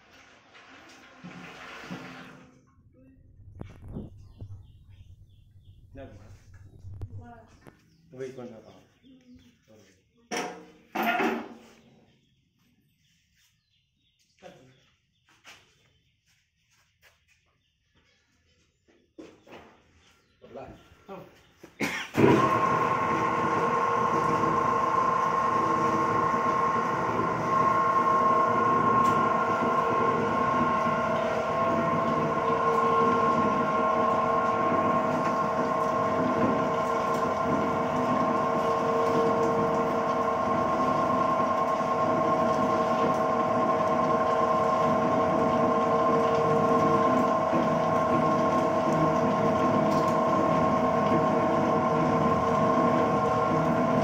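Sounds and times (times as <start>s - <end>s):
oil expeller machine droning: 22.1s - 54.0s
grinding noise: 22.2s - 54.0s.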